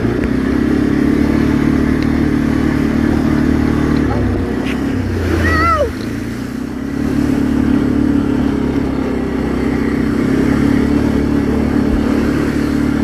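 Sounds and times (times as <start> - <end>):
atv engine running: 0.0 - 13.0
splashing through a puddle: 0.0 - 13.0.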